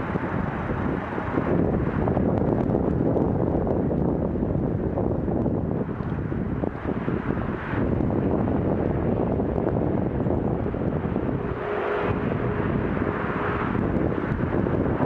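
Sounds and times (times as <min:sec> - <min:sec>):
distant motorway traffic: 0:00.0 - 0:15.0
wind rumbling on microphone: 0:00.0 - 0:15.0
vehicle passing: 0:06.4 - 0:15.0.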